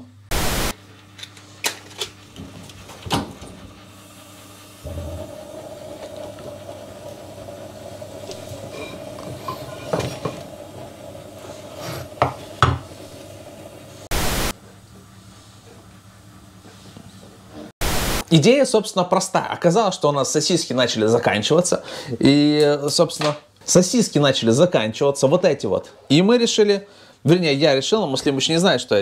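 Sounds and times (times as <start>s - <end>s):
steady hum: 0.0s - 2.0s, 3.4s - 14.7s, 17.8s - 18.2s
loud burst of hiss: 0.3s - 0.8s, 14.1s - 14.5s, 17.8s - 18.2s
utensils and dishes clinking: 8.2s - 10.5s.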